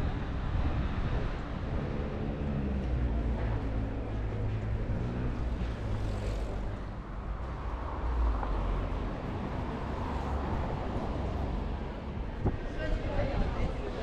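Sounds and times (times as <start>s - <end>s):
passing traffic rush: 0.0s - 14.0s.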